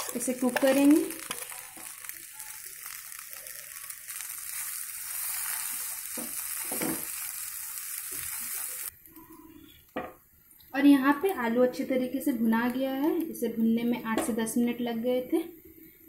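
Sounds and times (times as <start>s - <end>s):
potato sizzling in hot oil: 0.0s - 9.0s.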